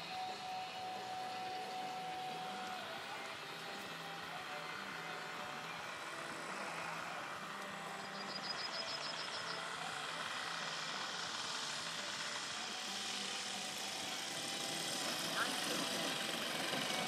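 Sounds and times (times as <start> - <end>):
model plane engines droning: 0.0 - 17.0
rapid high chirping: 8.0 - 9.7.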